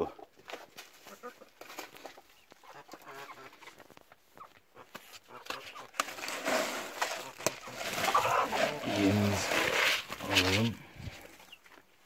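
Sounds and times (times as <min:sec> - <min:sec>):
hens clucking softly: 0:07.2 - 0:09.4.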